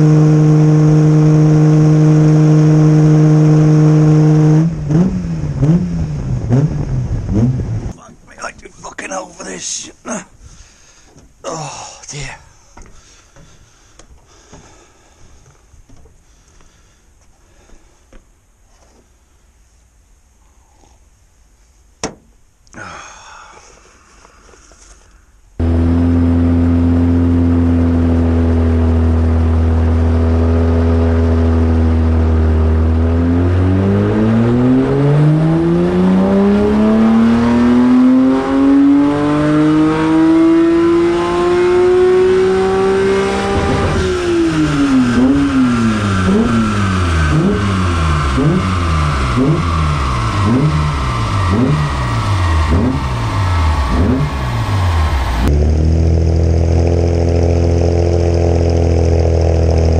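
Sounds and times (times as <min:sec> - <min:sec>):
car engine revving on dyno: 0:00.0 - 0:07.9, 0:25.6 - 0:59.9.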